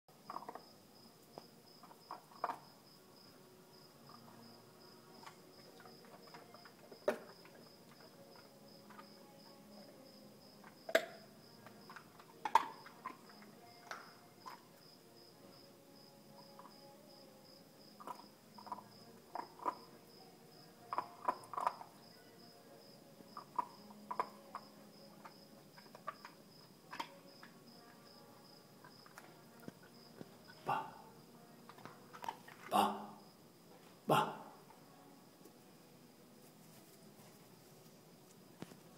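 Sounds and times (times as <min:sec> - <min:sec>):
crickets trilling: 0:00.2 - 0:31.2.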